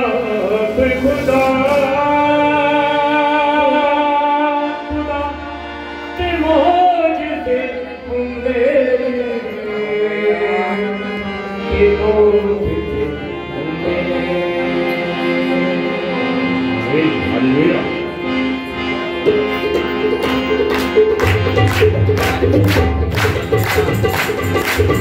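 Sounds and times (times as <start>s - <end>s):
harmonium chords: 0.0s - 25.0s
men singing: 6.2s - 16.6s
tabla strokes: 20.1s - 25.0s.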